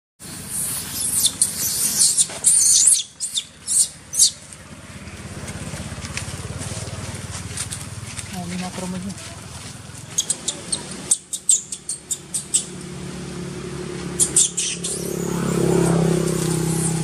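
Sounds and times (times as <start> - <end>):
baby monkey screaming: 0.5 - 4.4, 10.2 - 12.8, 14.2 - 15.8.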